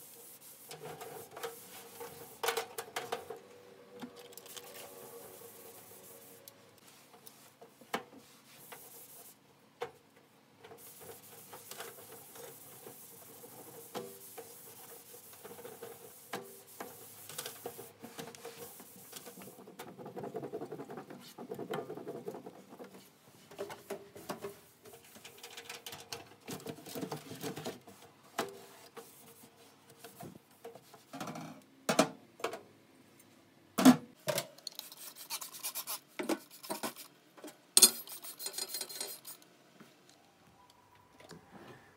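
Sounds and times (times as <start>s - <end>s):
cloth scrubbing stovetop: 0.0s - 3.3s, 4.4s - 7.6s.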